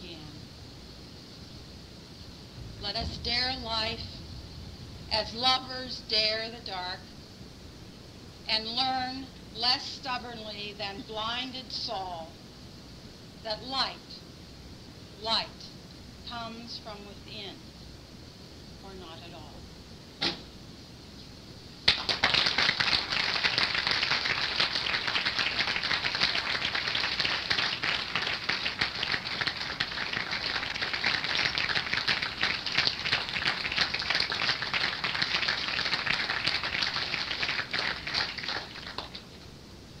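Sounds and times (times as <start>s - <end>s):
audience applauding: 21.9s - 39.2s.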